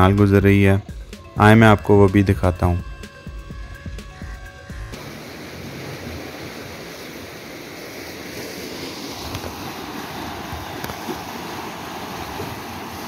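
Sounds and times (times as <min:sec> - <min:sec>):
water rushing and churning: 0:00.0 - 0:13.0
wind buffeting microphone: 0:05.1 - 0:13.0.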